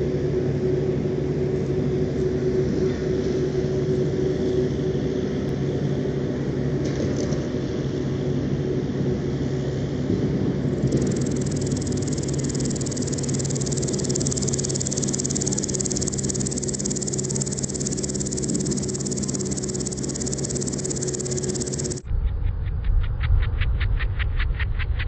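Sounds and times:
grasshopper stridulating: 10.7s - 22.1s.

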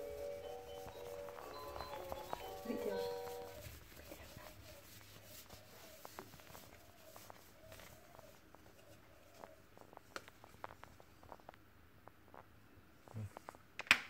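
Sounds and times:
paper towel rubbing cooktop: 0.0s - 9.2s.

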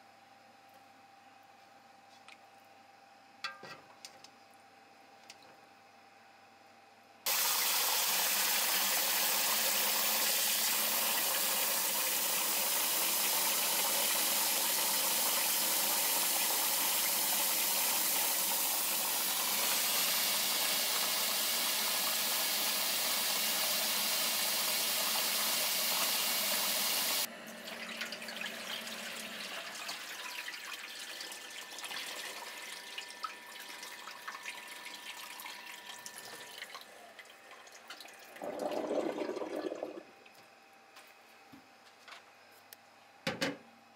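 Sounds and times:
tap water running into metal bowl: 7.3s - 40.0s
water dripping and trickling: 27.7s - 38.4s.

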